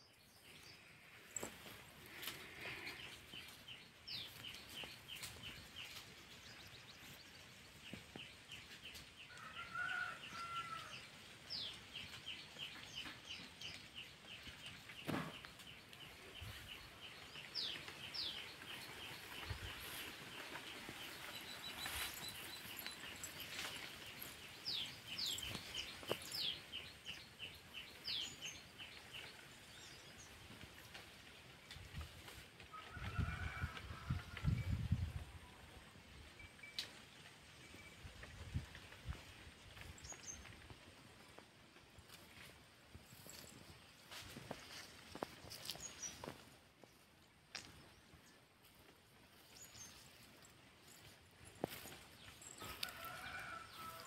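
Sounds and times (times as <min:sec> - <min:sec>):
birds chirping: 0:00.0 - 0:08.7, 0:09.3 - 0:30.4, 0:43.0 - 0:54.0.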